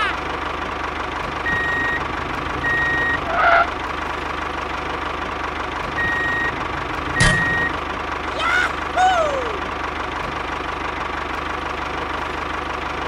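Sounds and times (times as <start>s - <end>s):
tractor engine idling: 0.0s - 13.0s
reversing alarm beeps: 1.5s - 2.0s, 2.6s - 3.3s, 6.0s - 6.6s, 7.2s - 7.8s.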